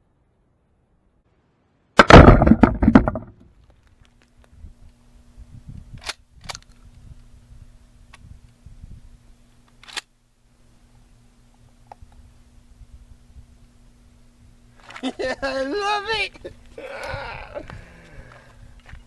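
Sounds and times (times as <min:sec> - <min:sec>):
shotgun firing: 0:02.0 - 0:03.3.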